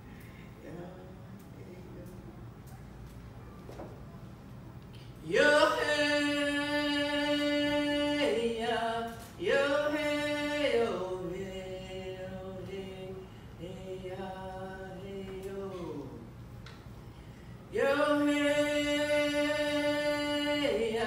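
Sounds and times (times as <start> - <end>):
woman singing unaccompanied: 5.2 - 16.2, 17.7 - 21.0.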